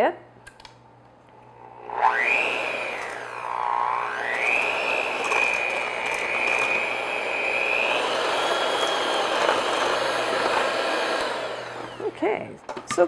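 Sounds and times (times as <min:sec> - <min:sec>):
electric hand mixer whirring: 0:01.4 - 0:12.5.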